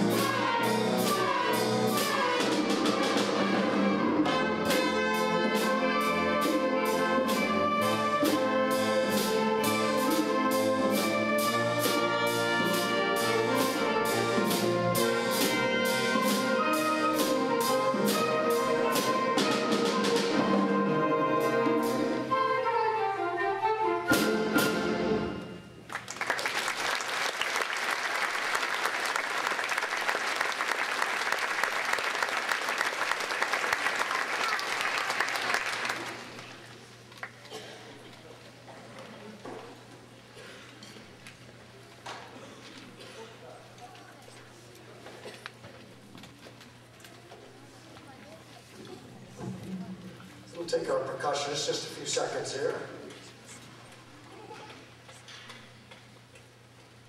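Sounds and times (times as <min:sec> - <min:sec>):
concert band playing: 0:00.0 - 0:26.4
audience applause: 0:25.9 - 0:37.5.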